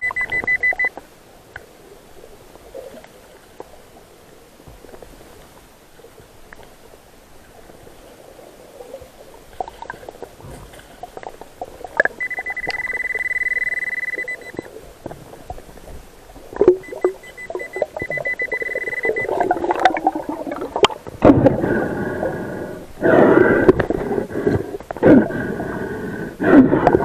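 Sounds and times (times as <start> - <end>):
metal detector high beep: 0.0 - 0.9, 12.2 - 14.7, 16.8 - 19.5
churning water: 6.2 - 27.0.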